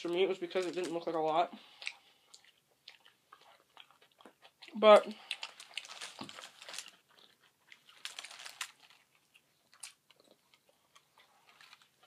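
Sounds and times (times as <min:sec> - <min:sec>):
chewing with wet mouth smacks: 0:01.7 - 0:08.3.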